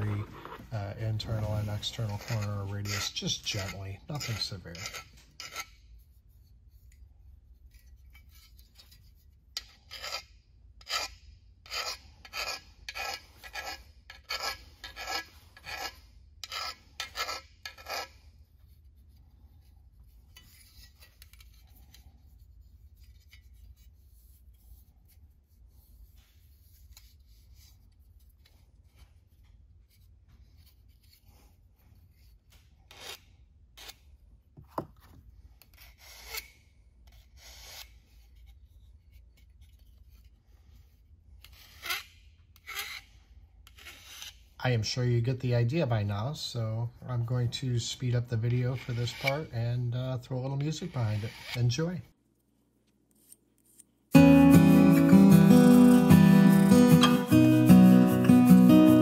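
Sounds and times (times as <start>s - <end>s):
hand file rasping on metal: 0.0s - 6.3s, 9.6s - 19.7s, 54.6s - 57.9s.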